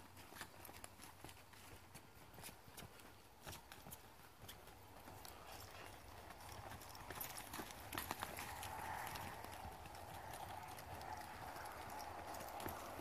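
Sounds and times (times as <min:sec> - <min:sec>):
hoofbeats on soft dirt: 0:00.0 - 0:13.0.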